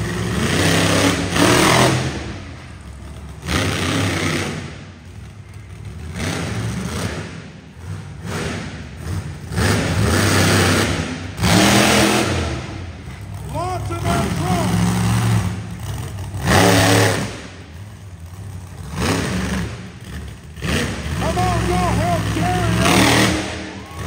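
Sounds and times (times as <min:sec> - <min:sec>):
monster truck engine revving: 0:00.0 - 0:24.0.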